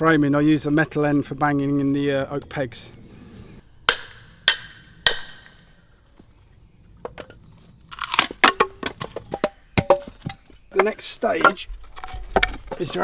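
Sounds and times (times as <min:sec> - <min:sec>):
wood cracking and clattering: 0:07.2 - 0:13.0.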